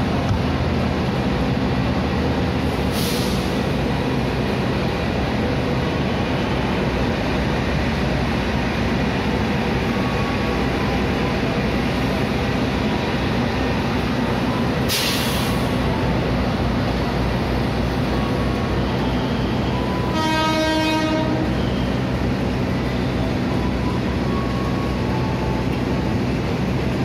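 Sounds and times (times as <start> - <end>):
locomotive engine humming: 0.0 - 27.0
brief hisses: 2.9 - 3.6, 14.9 - 15.7.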